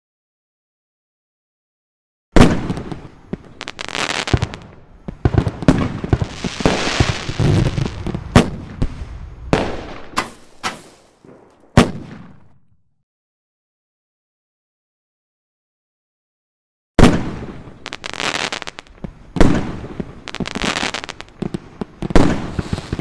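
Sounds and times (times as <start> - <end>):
fireworks crackling: 2.4 - 12.4, 17.1 - 23.0
fireworks bangs: 2.4 - 12.7, 17.0 - 23.0.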